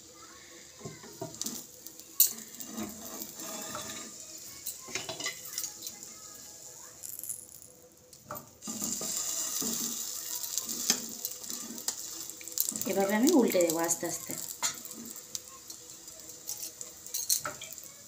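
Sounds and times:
butter sizzling: 0.0 - 18.0
spatula scraping frying pan: 1.3 - 6.1, 8.6 - 18.0.

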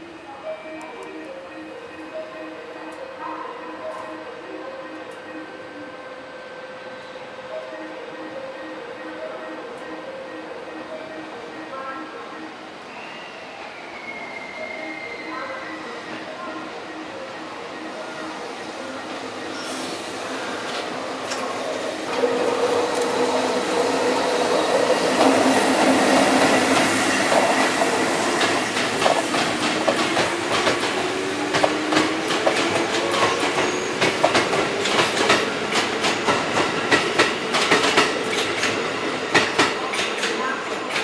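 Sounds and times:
train wheels clicking over rail joints: 22.1 - 41.0.

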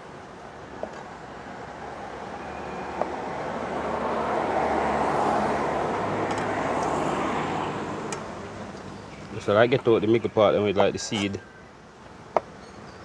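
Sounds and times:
vehicle passing by: 1.8 - 8.8.

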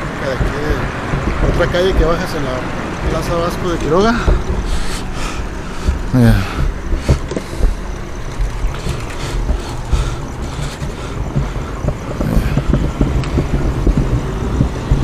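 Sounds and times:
motor vehicle rumbling: 0.0 - 15.0
short knocks: 4.0 - 15.0.

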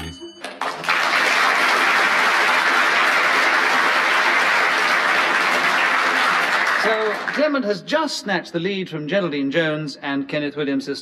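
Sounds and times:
audience applause: 0.5 - 7.6.

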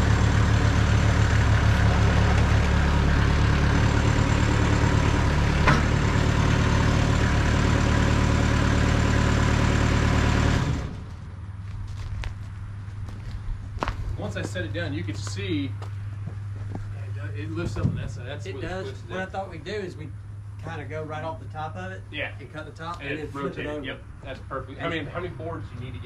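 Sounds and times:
sawmill engine running: 0.0 - 11.4.

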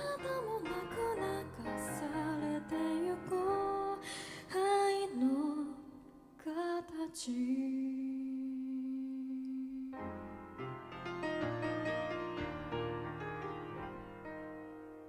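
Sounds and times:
woman singing pop ballad: 0.0 - 10.0
piano: 0.0 - 15.0.

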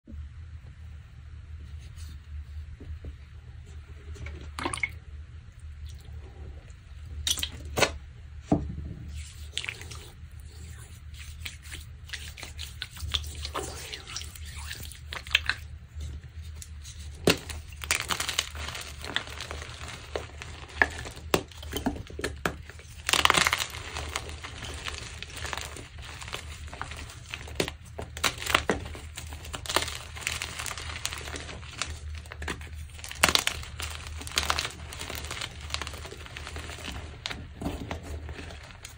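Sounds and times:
steady low hum: 0.1 - 38.9
chalk crunching and crackling: 9.1 - 38.9.

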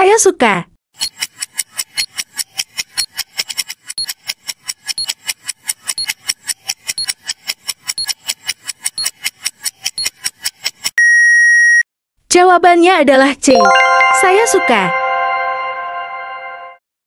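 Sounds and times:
rapid clock-like ticking: 1.0 - 11.0.

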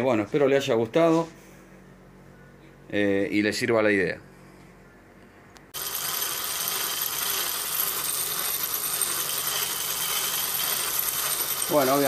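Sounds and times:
knife grinding on sander drum: 5.8 - 12.0.

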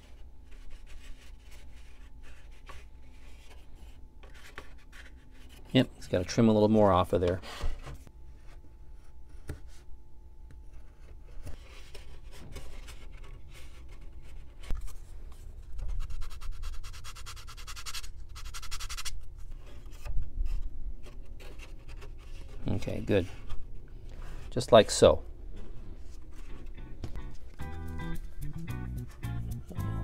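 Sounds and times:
balsa strip scratching on wood: 15.8 - 23.6.

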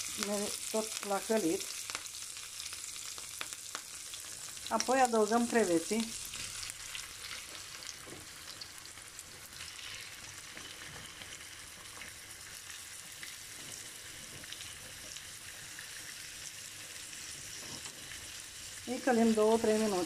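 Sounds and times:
shrimp sizzling in hot oil: 0.0 - 20.0.

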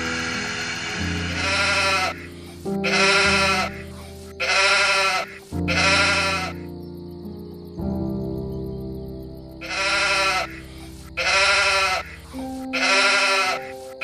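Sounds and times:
background music: 0.0 - 14.0
quavering bleats: 0.4 - 6.7, 9.6 - 14.0.

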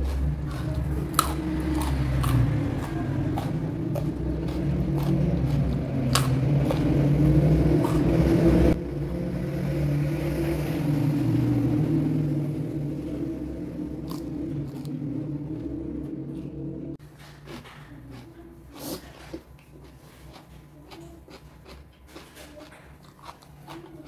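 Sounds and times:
chewing food: 0.0 - 8.2, 14.0 - 15.7, 16.4 - 24.0.

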